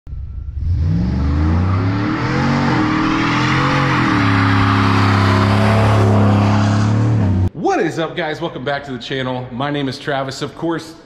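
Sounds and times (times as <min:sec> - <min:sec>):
loud engine exhaust revving: 0:00.1 - 0:07.5.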